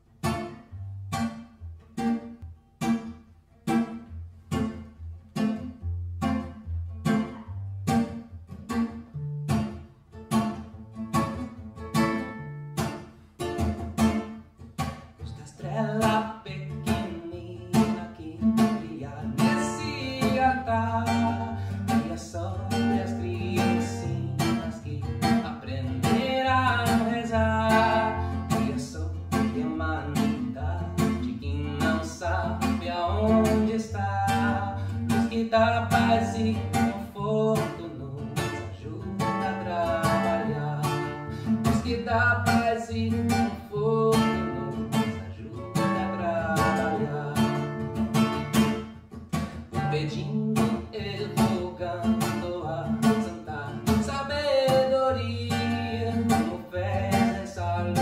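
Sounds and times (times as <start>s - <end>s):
acoustic guitar strumming: 0.0s - 58.0s
man singing: 15.2s - 58.0s.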